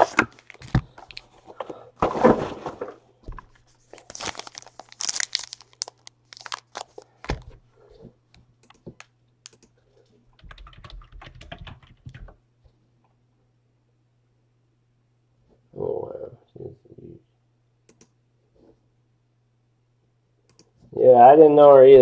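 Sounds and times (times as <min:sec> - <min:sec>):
plastic wrapping crinkling and tearing: 0:00.0 - 0:01.3, 0:03.7 - 0:07.6
sharp clicks: 0:09.5 - 0:09.8.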